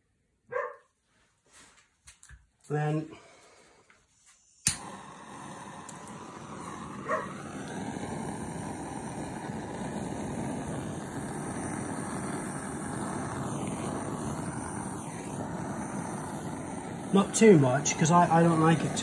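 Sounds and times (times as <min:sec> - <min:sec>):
blowtorch hissing: 0:03.1 - 0:19.0
blowtorch lighting click: 0:04.6 - 0:19.0.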